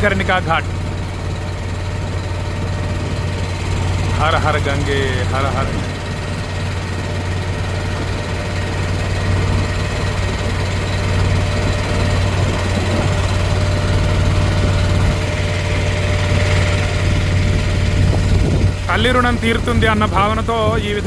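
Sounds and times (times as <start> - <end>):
boat engine humming: 0.0 - 21.0.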